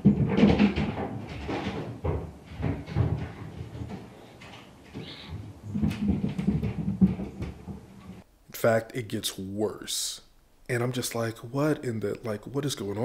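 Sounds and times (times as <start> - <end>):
muffled thuds through ceiling: 0.0 - 8.3.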